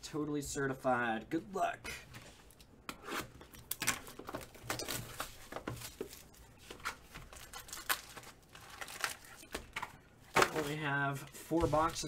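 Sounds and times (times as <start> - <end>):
wrapper crinkling and tearing: 3.6 - 10.8.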